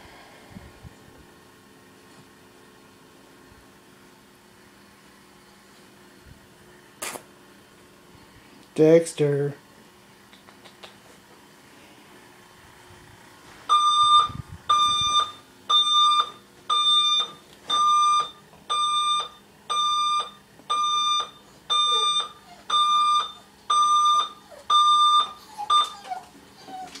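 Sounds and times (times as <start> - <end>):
alarm clock beeping: 13.7 - 25.9.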